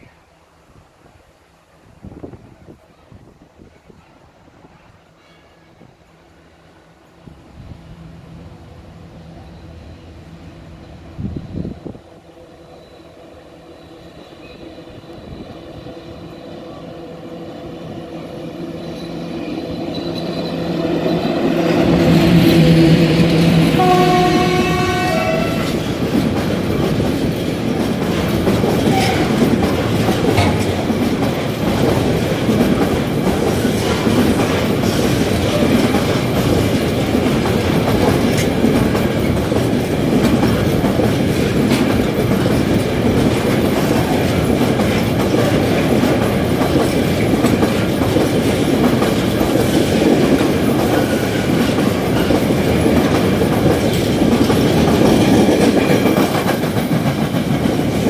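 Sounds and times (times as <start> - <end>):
freight train rumbling past: 1.8 - 58.0
wheels clattering over rail joints: 19.7 - 58.0.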